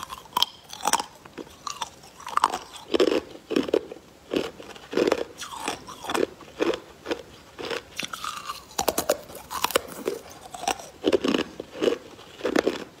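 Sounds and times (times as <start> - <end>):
crunching and chewing ice: 0.0 - 13.0.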